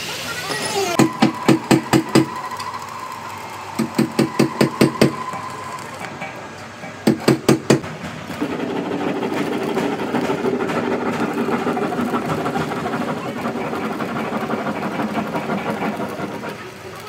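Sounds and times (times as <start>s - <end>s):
workshop machine droning: 0.0s - 17.0s
sharp metal knocks: 6.1s - 12.4s.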